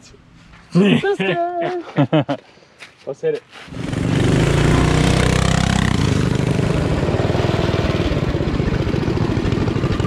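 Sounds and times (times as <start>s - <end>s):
mini bike engine running: 3.7s - 10.0s.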